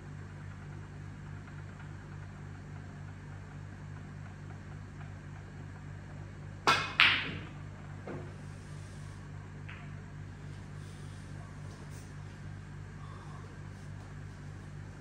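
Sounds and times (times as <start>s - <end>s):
cue tip striking ball: 6.6s - 9.0s
ball knocking into pocket: 6.7s - 7.5s
snooker balls clicking: 6.7s - 8.3s.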